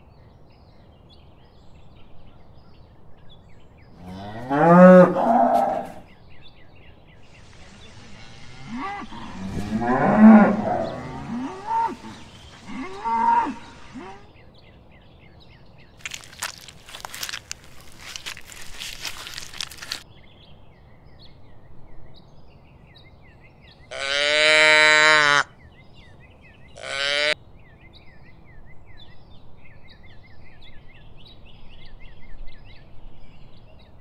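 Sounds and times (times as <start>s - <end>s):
cows mooing: 4.0s - 6.0s, 7.4s - 14.2s, 26.8s - 27.4s.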